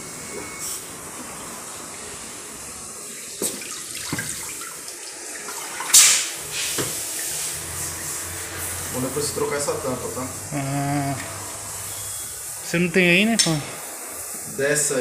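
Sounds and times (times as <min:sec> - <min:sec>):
water sloshing in a tank: 0:03.0 - 0:08.6
gush of pouring water: 0:03.0 - 0:08.8.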